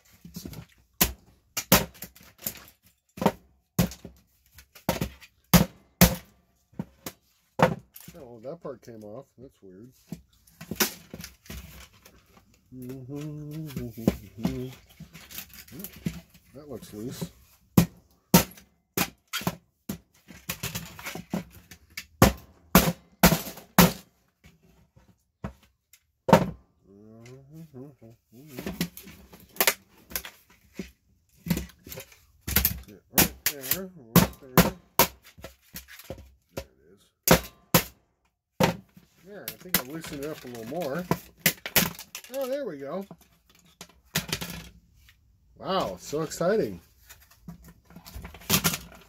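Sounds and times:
plastic case knocking and clacking: 0.3 - 8.2, 26.3 - 26.6
hammer knocking plastic case: 26.3 - 26.6, 28.5 - 37.9.

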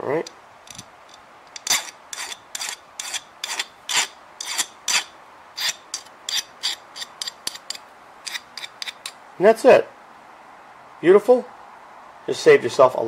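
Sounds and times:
hand file rasping on metal: 1.6 - 9.2.

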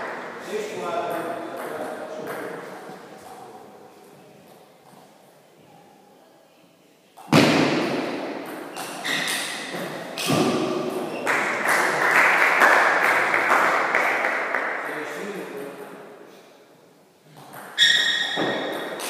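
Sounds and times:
spectators clapping: 11.2 - 15.1.

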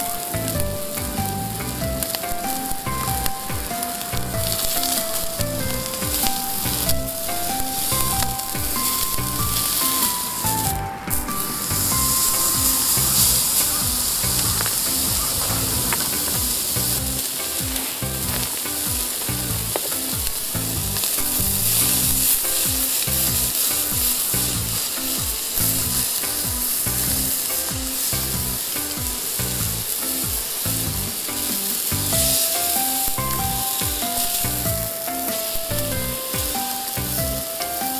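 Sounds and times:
steak sizzling on griddle: 0.0 - 37.9.

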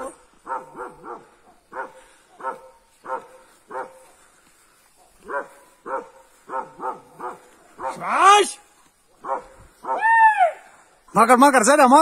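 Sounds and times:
dog barking: 0.0 - 8.4, 9.1 - 10.1.

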